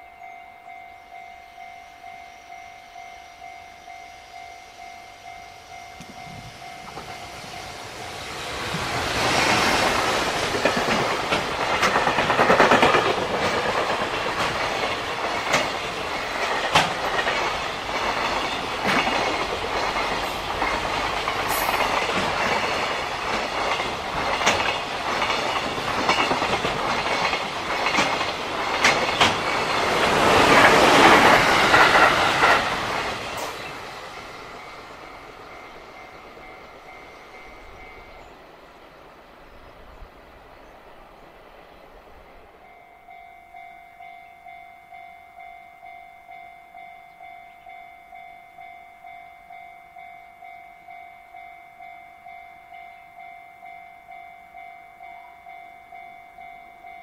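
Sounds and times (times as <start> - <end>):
freight train wheels rumbling on rail: 0.0 - 57.0
clatter over rail joints: 8.6 - 34.4.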